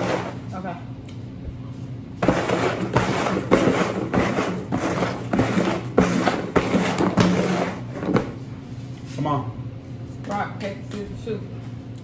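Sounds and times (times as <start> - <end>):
plastic bowls scraping on wood: 0.0 - 0.4, 2.2 - 8.4
steady low hum: 0.0 - 12.0.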